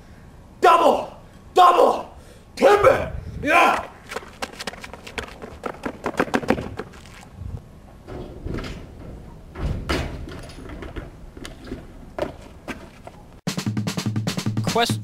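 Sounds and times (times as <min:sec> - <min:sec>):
clatter on metal dumpster: 0:08.1 - 0:11.1.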